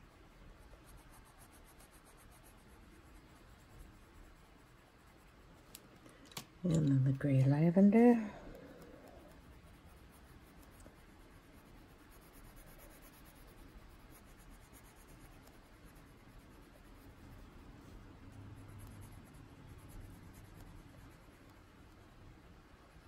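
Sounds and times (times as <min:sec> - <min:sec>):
pencil scratching on paper: 0:00.6 - 0:05.6, 0:09.0 - 0:21.7.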